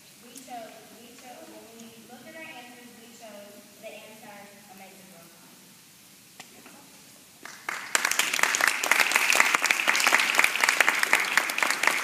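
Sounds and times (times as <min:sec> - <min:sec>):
small audience clapping: 0:07.4 - 0:12.0.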